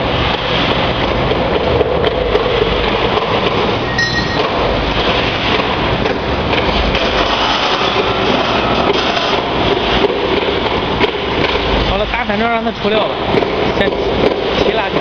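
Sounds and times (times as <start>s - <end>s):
roaster machine rushing noise: 0.0s - 15.0s
brief high tone: 3.8s - 4.8s.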